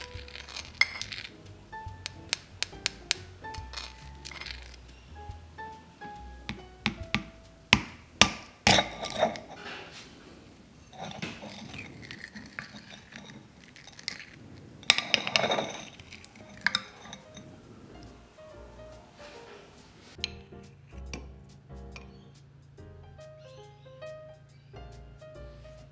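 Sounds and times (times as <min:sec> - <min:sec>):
spoon crunching into dessert: 0:00.0 - 0:04.9, 0:10.9 - 0:17.4
spoon cracking sugar crust: 0:00.0 - 0:05.4, 0:10.9 - 0:17.6.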